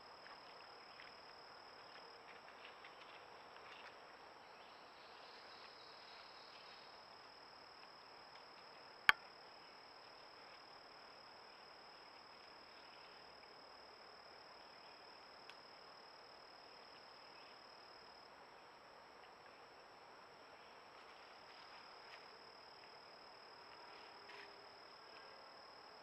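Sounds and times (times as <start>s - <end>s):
high-pitched insect chorus: 4.5s - 18.4s.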